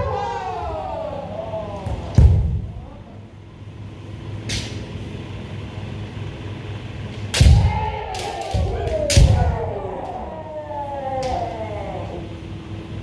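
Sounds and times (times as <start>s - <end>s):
steady low hum: 0.0s - 13.0s
bamboo swords cracking: 4.4s - 4.9s, 7.1s - 10.2s.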